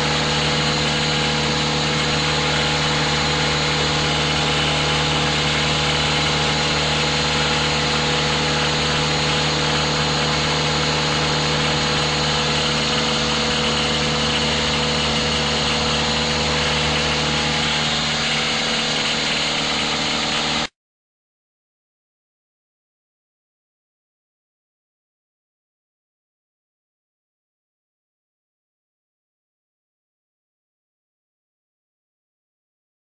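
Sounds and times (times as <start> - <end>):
engine droning steadily: 0.0 - 20.7.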